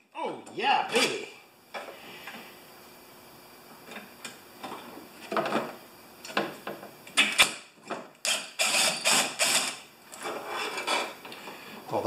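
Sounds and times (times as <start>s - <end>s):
cordless drill running: 8.3s - 9.8s.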